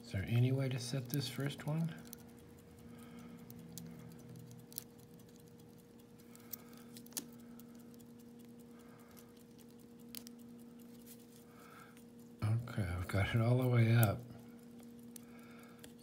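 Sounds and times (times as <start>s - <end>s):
steady low hum: 0.0s - 16.0s
lock pick ticking in a lock: 0.3s - 11.1s.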